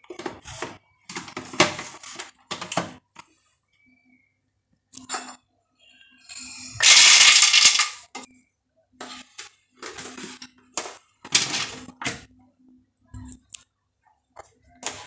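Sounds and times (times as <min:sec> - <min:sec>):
peanuts rattling in plastic jar: 0:06.8 - 0:08.1.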